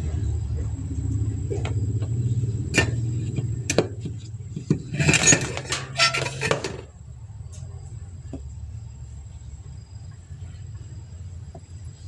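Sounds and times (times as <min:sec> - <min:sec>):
low rumble: 0:00.0 - 0:05.1.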